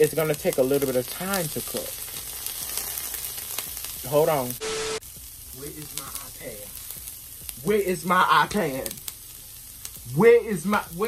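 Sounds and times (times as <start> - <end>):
food sizzling in skillet: 0.0 - 11.0.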